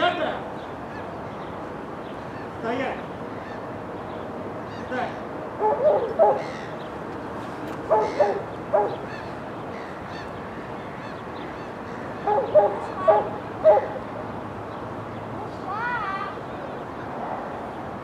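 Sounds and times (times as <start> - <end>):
dog barking: 5.6 - 6.4, 7.9 - 9.0, 12.3 - 14.0.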